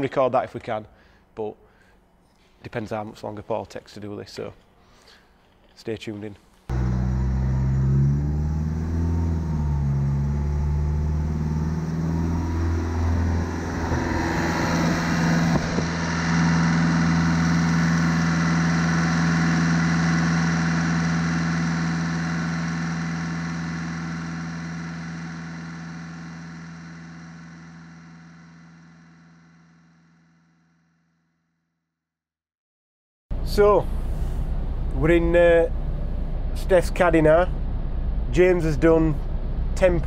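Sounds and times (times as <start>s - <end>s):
diesel engine running: 6.7s - 30.4s.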